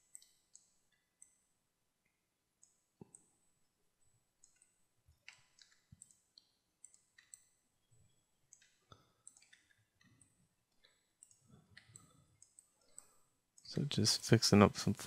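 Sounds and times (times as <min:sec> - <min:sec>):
mouse and keyboard clicking: 0:04.4 - 0:07.6, 0:08.5 - 0:13.7.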